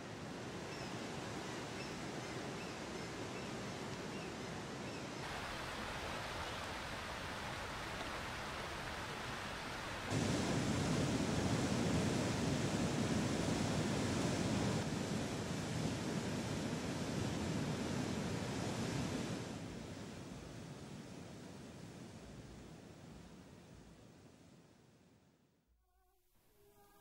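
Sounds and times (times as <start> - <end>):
river rapids rushing: 5.2 - 14.8.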